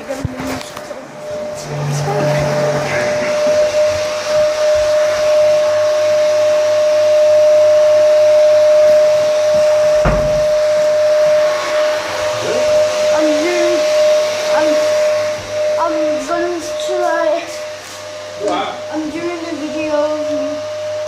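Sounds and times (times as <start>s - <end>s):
motor whine with rushing hiss: 0.0s - 21.0s
sharp knock: 10.0s - 10.6s.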